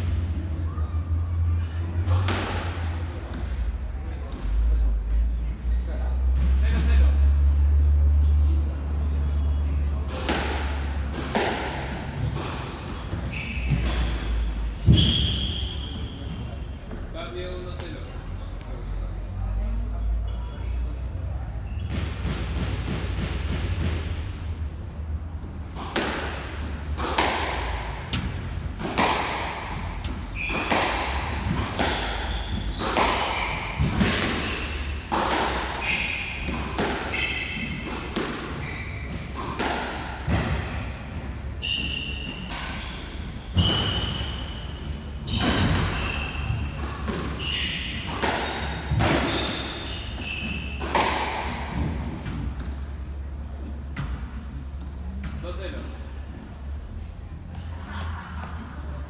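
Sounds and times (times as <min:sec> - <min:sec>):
squash ball smacking: 0:02.0 - 0:03.0, 0:10.1 - 0:14.0, 0:21.9 - 0:24.7, 0:25.4 - 0:41.2, 0:45.3 - 0:53.0
sneakers squeaking on wooden floor: 0:11.4 - 0:18.1, 0:21.5 - 0:22.3, 0:25.5 - 0:55.5.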